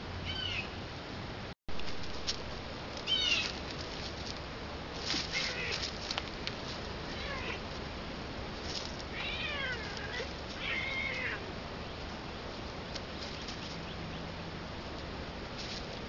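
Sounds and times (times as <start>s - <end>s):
cat meowing: 7.1s - 7.6s, 9.1s - 11.4s.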